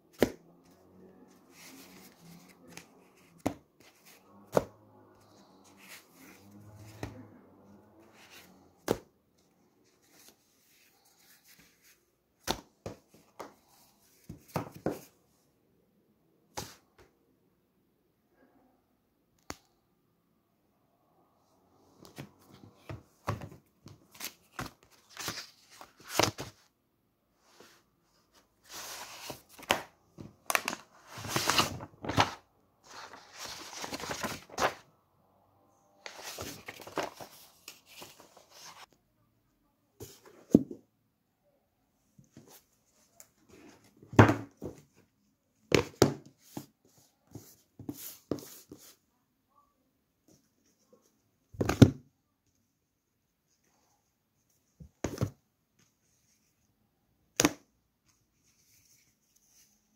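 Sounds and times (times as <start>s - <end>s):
pages rustling: 22.0s - 26.7s, 28.6s - 34.8s, 36.0s - 38.9s.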